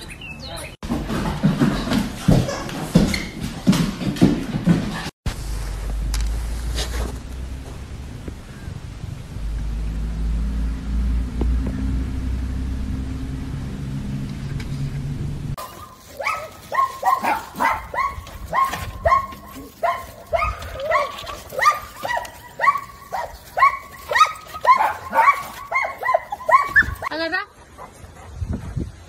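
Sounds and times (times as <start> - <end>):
low steady rumble: 5.3 - 15.6
small dog barking: 15.6 - 27.1.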